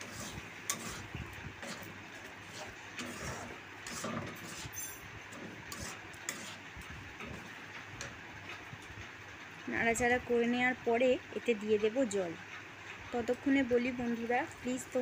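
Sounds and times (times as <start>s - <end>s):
metal spatula scraping a pan: 0.0s - 7.5s.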